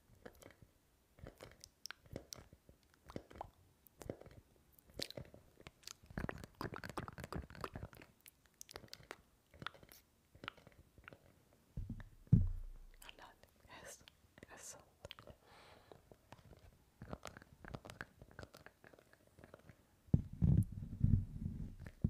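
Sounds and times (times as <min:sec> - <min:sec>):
crunchy clicks and nibbling noises: 0:01.2 - 0:11.4, 0:15.0 - 0:15.4, 0:16.1 - 0:20.7.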